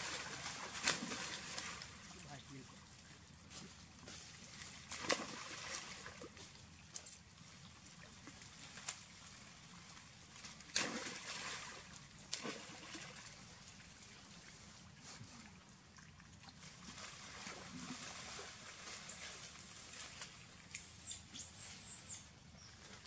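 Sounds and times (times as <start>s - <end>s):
monkeys splashing in water: 0.0s - 2.2s, 4.5s - 6.4s, 10.4s - 13.5s.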